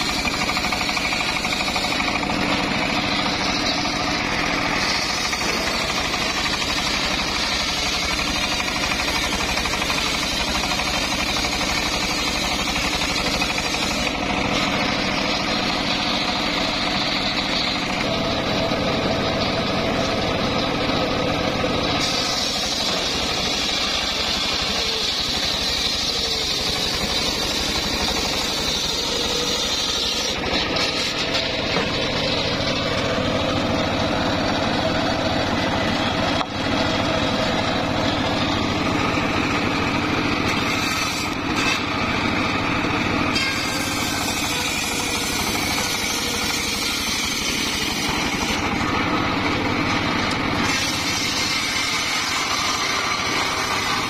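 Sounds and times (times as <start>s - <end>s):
circular sawmill cutting log: 0.0s - 54.0s.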